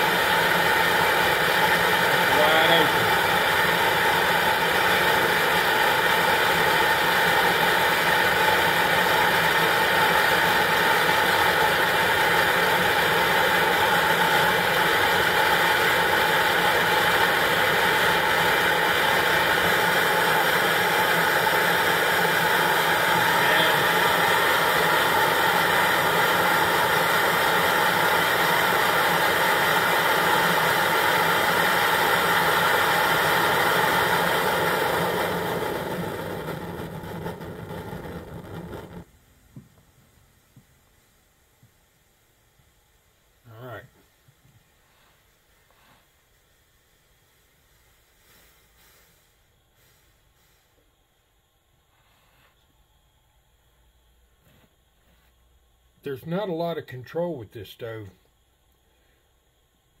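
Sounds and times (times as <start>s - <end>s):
stove burner rushing: 0.0s - 39.1s.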